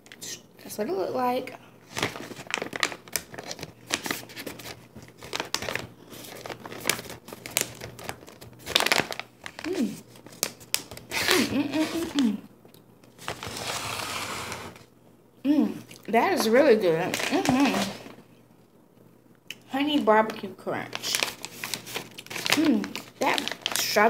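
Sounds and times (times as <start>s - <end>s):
snack pouch crinkling: 1.8s - 12.2s, 20.9s - 24.0s.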